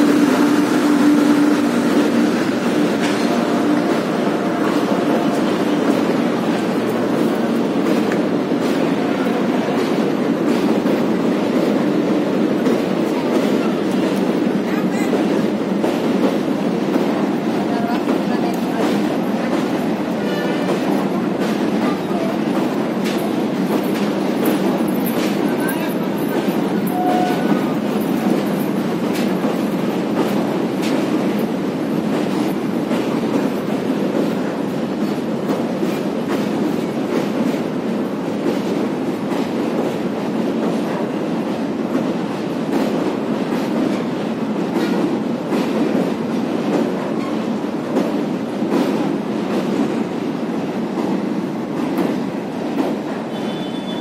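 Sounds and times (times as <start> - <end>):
train rumbling over bridge: 0.0 - 54.0
wheels clacking over rail joints: 1.8 - 34.4.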